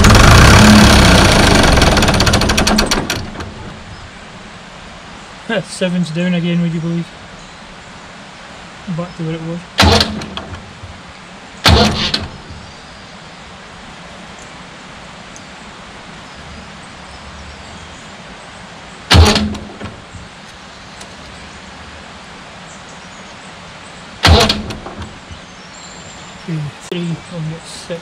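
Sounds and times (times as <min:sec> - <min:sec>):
diesel engine starter cranking: 0:00.0 - 0:03.9, 0:09.8 - 0:10.7, 0:11.6 - 0:12.5, 0:19.1 - 0:20.0, 0:24.2 - 0:25.4.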